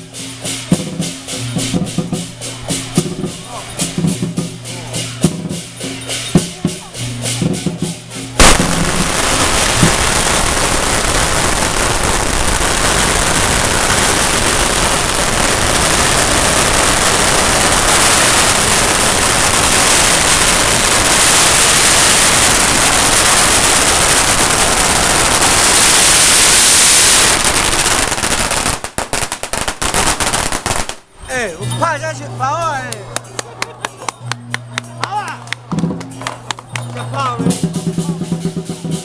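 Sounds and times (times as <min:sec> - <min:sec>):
firecrackers crackling: 0:00.0 - 0:39.0.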